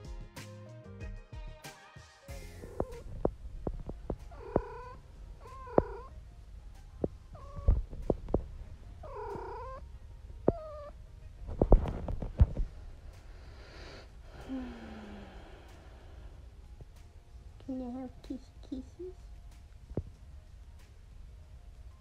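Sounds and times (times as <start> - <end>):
cat meowing: 4.3 - 6.1, 7.3 - 7.9, 9.0 - 9.8.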